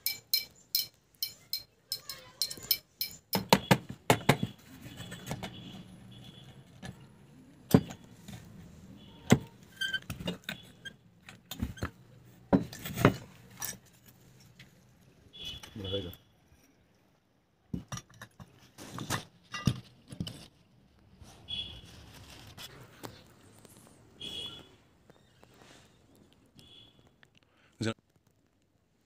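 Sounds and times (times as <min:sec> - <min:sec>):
metallic clinks: 0:00.0 - 0:03.4.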